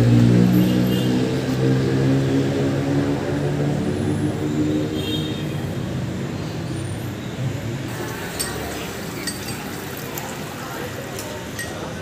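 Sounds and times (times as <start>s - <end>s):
dishes and cutlery clinking: 8.0s - 10.3s, 11.2s - 12.0s.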